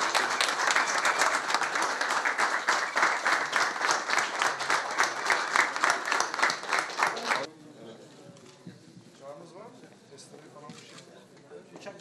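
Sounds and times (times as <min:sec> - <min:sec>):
crowd applauding: 0:00.0 - 0:07.5.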